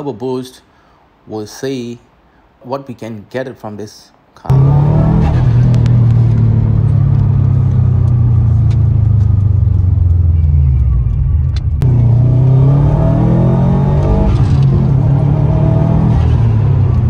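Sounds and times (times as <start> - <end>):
car engine accelerating: 4.5 - 17.0.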